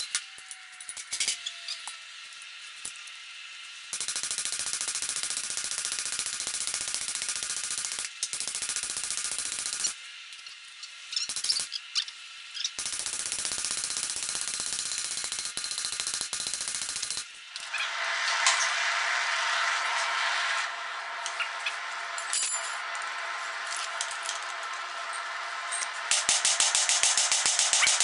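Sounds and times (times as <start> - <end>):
steady rushing noise: 17.7 - 28.0.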